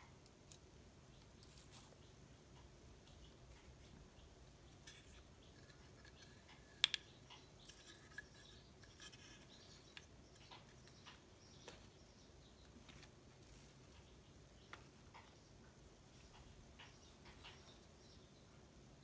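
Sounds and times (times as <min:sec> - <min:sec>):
wooden pieces clicking and tapping: 0:04.7 - 0:11.9.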